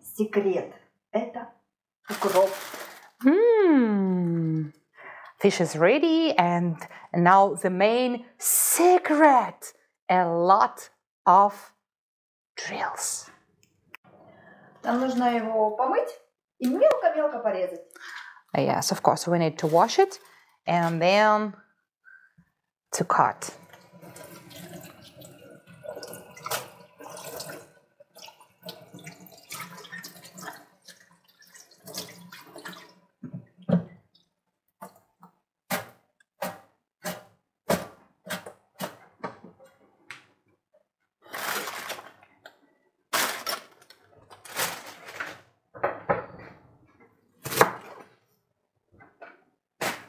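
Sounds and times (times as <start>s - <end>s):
wet herbs shaken splashing: 2.1s - 3.1s.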